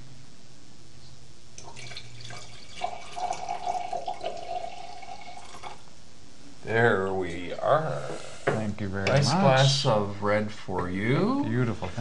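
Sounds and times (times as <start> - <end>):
wine pouring into a glass: 1.6 - 5.8.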